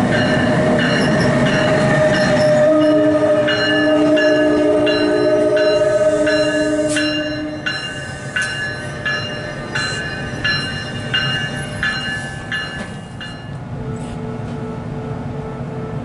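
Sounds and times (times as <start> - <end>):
locomotive bell ringing: 0.0 - 13.6
low rumble of train coaches: 0.0 - 16.0
train horn: 1.7 - 7.8.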